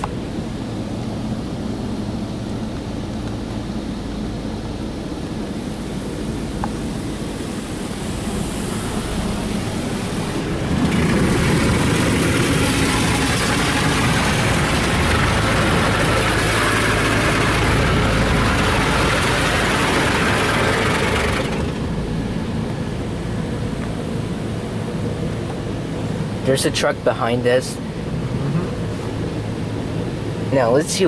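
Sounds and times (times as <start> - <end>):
low steady hum: 0.0 - 31.0
water spray rushing over car: 6.9 - 21.9.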